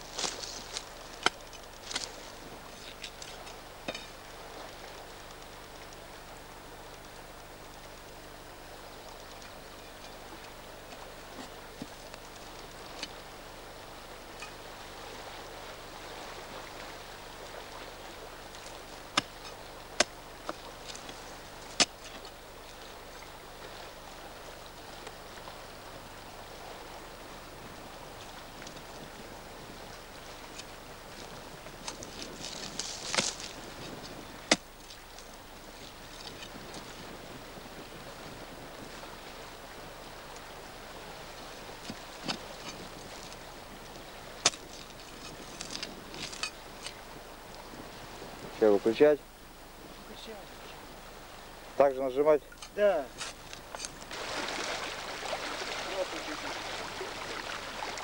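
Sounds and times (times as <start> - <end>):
metal bar clicking in stony soil: 32.8 - 33.5, 44.4 - 47.0, 52.5 - 54.1.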